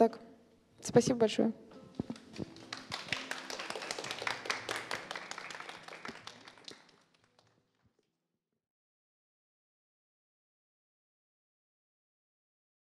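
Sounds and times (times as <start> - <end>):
audience applauding: 2.0 - 7.6.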